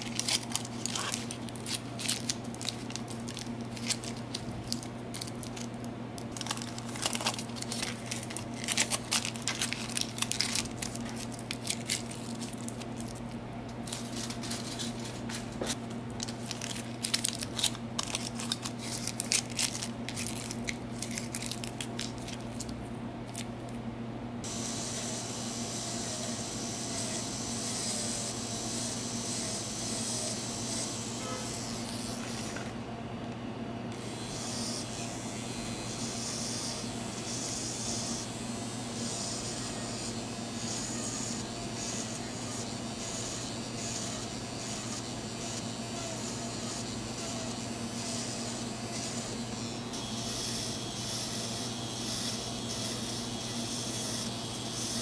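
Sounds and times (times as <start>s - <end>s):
aluminium foil crinkling: 0.0s - 23.5s
electric nail drill running: 24.4s - 32.6s, 33.9s - 55.0s.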